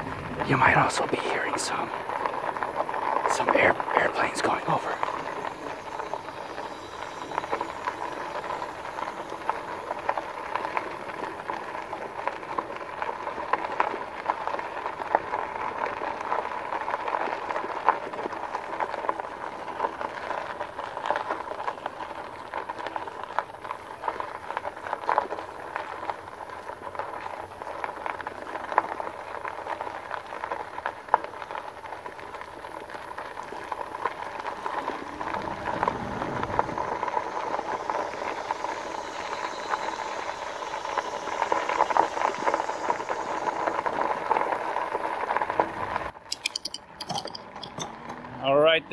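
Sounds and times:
bike tyres crunching on gravel: 1.7s - 48.9s.

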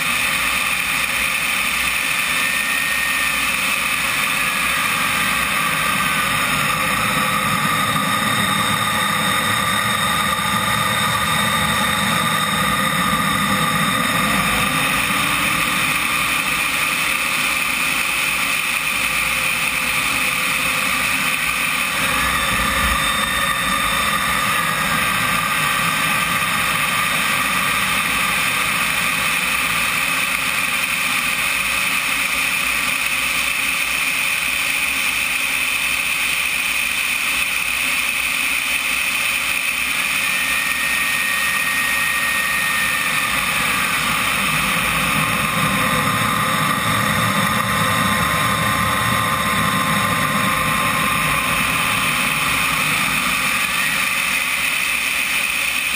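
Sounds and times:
jet turbine whine: 0.0s - 55.9s.

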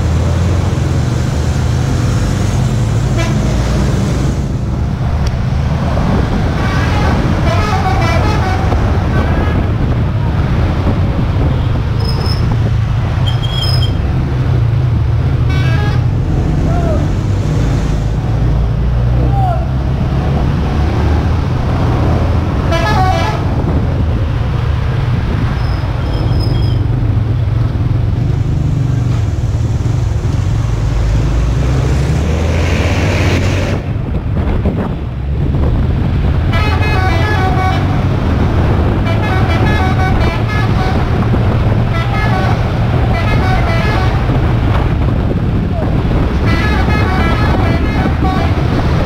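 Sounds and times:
minibus engines and road noise: 0.0s - 49.0s
vehicle horn tooting: 6.6s - 9.6s, 15.5s - 16.1s, 22.7s - 23.5s, 36.5s - 37.9s, 39.0s - 41.1s, 41.9s - 44.2s, 46.4s - 48.6s.

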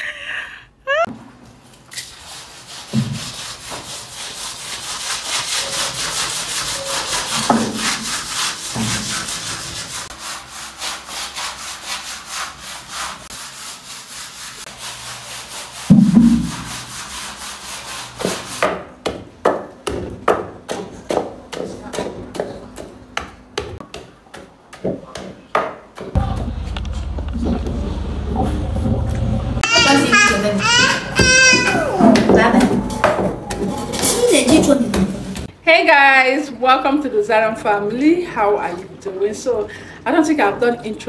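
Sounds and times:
brush scrubbing wet tiled floor: 1.5s - 18.8s, 29.6s - 35.5s
pestle pounding in mortar: 18.2s - 26.6s.

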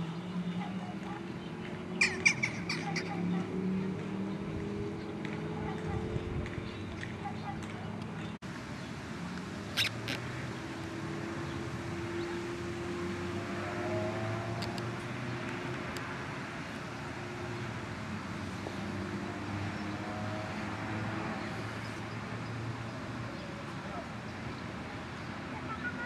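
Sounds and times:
distant traffic hum: 0.0s - 26.0s.

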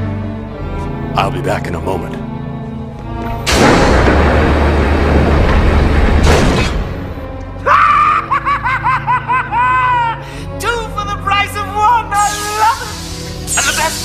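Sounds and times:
blast-like rush with deep rumble: 3.3s - 7.4s
high-pitched cackling laugh: 7.9s - 10.2s.

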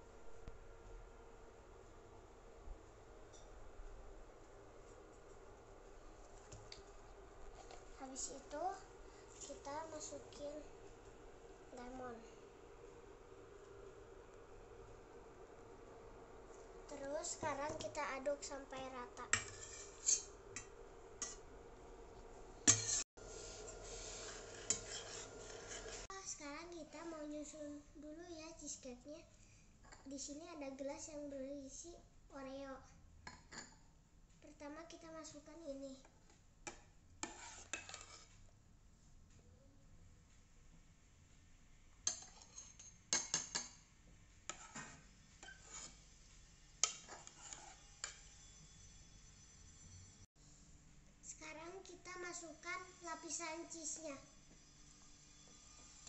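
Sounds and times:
spoon stirring liquid in a pot: 19.3s - 21.4s, 22.7s - 26.1s, 36.7s - 38.4s, 42.1s - 43.8s, 44.5s - 46.1s, 46.8s - 48.3s.

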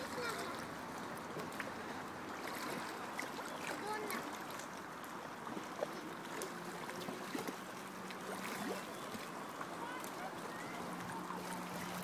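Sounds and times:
small waves lapping: 0.0s - 12.0s
faint voices: 9.6s - 12.0s.

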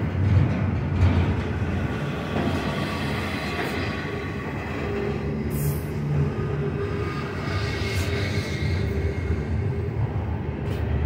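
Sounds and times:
steel wheels rumbling on rails: 0.0s - 11.0s
low hum: 3.2s - 11.0s.

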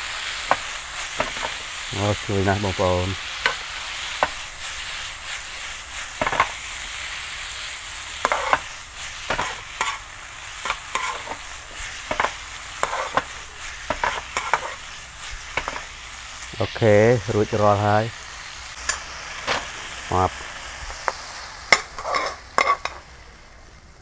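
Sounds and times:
food sizzling in a wok: 0.0s - 24.0s
metal spatula scraping a wok: 0.5s - 1.7s, 8.1s - 16.0s, 21.7s - 23.1s.

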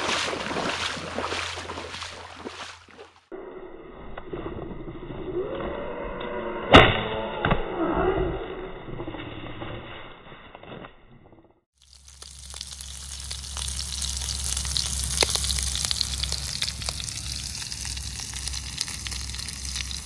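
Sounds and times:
meat sizzling in a skillet: 11.8s - 20.0s.

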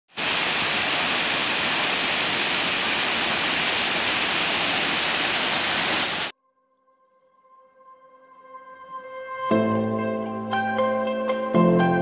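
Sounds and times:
waterfall rushing: 0.1s - 6.3s.

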